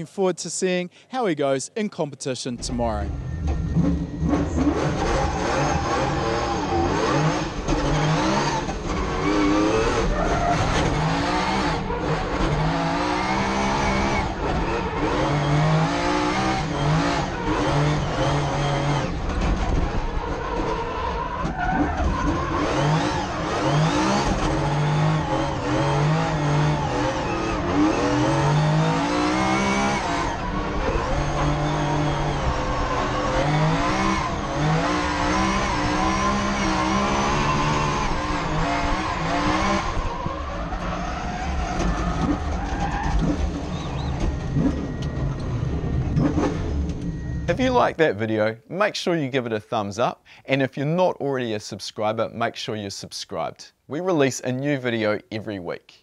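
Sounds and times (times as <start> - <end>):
engine revving hard: 3.1 - 20.7, 22.0 - 47.8
tyre squeal: 3.3 - 11.2, 16.7 - 47.5.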